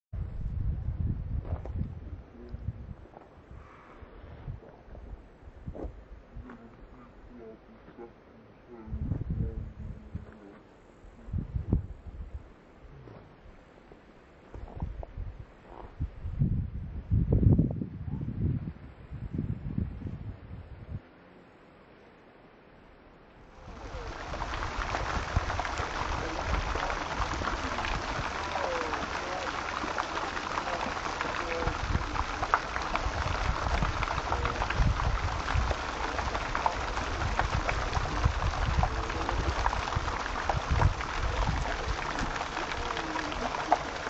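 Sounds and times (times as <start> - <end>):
fountain splashing into basin: 23.6 - 44.0.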